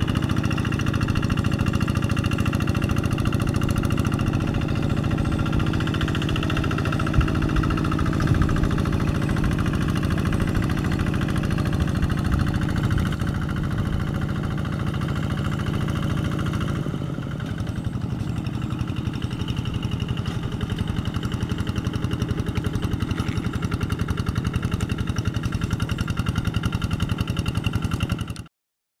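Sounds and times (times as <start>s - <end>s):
diesel engine chugging: 0.0s - 28.5s.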